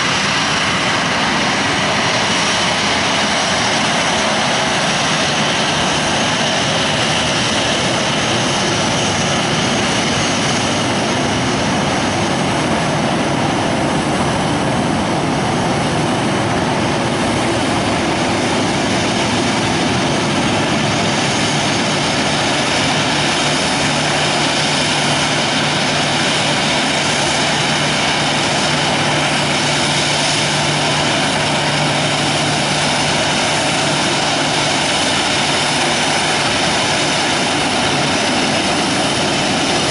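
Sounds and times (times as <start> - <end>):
jet engines running: 0.0 - 39.9.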